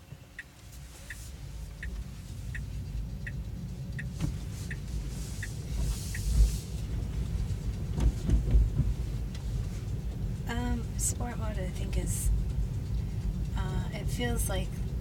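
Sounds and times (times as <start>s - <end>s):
road rumble inside car: 0.0s - 15.0s
low thumps: 7.9s - 9.1s.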